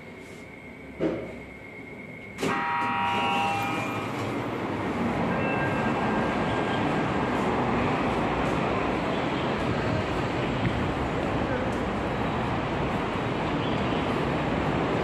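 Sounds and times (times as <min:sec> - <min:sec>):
road traffic passing: 0:00.0 - 0:15.0
short pitched tone: 0:02.4 - 0:04.4, 0:05.2 - 0:06.6.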